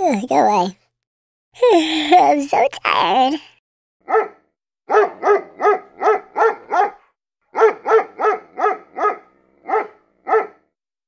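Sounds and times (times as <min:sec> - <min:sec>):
dog barking: 0:04.0 - 0:10.7.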